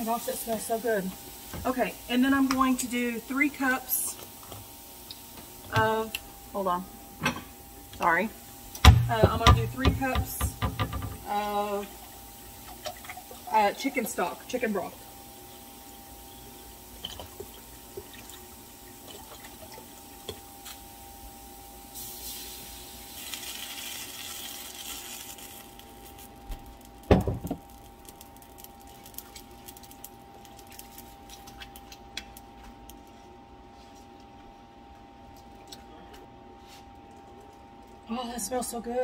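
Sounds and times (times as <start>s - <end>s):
faint hum: 0.0s - 39.0s
broth pouring into a pot: 9.9s - 33.0s.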